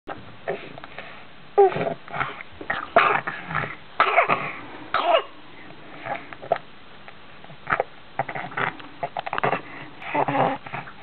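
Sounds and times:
baby coughing: 4.0 - 5.4.

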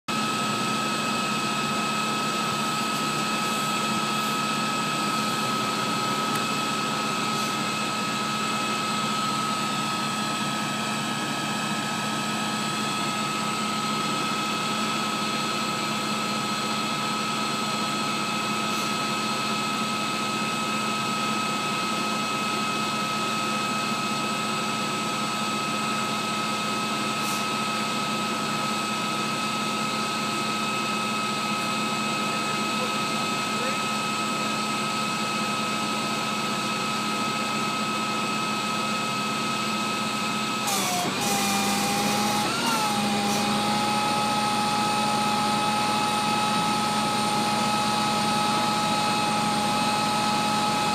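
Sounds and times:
vehicle engine idling: 0.5 - 14.4.

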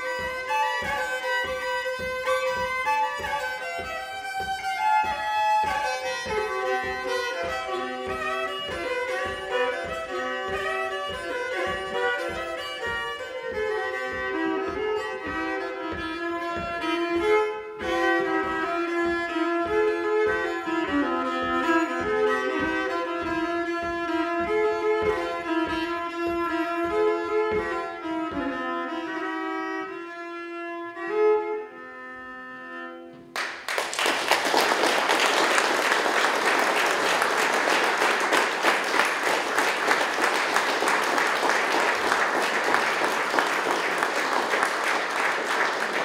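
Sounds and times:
low thump keeping beat: 0.0 - 30.0
fiddle playing folk dance tune: 0.0 - 46.0
audience applauding: 33.3 - 46.0.

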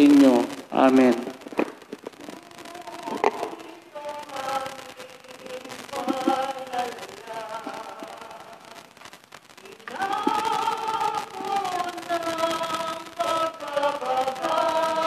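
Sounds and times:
hymn being sung: 2.3 - 8.8, 9.7 - 15.0.

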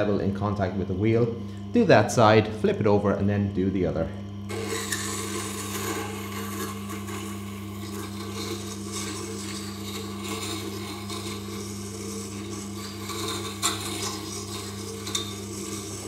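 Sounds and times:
motor hum: 0.0 - 16.0
steel scraping on grinding stone: 4.5 - 16.0.

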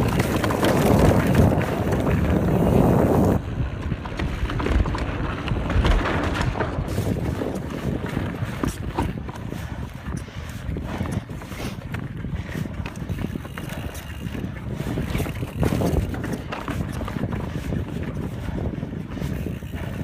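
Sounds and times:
tyres crunching over stones: 0.0 - 9.5
bike rattling: 0.0 - 20.0
wind buffeting microphone: 0.0 - 20.0.

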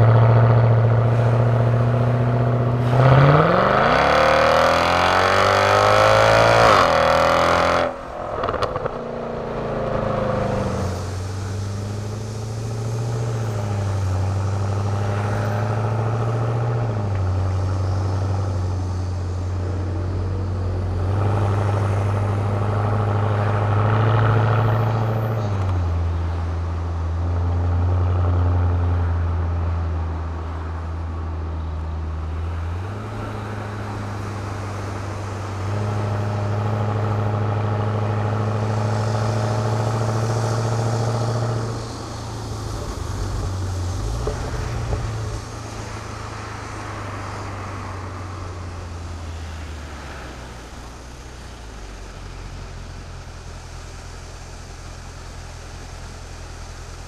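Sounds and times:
car engine with gear changes: 0.0 - 57.0
road noise: 0.0 - 57.0.

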